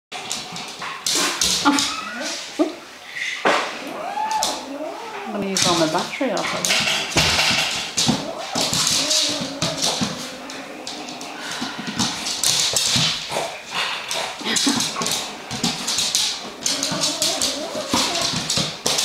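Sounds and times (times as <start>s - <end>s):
puppy claws clicking on wooden floor: 5.4s - 19.0s.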